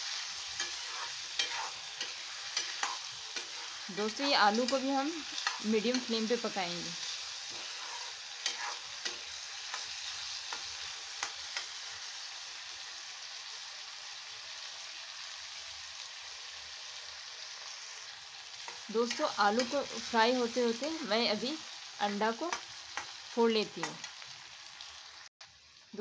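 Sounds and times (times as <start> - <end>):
potatoes sizzling in oil: 0.0 - 26.0
spatula scraping a pan: 0.1 - 6.1, 7.0 - 11.8.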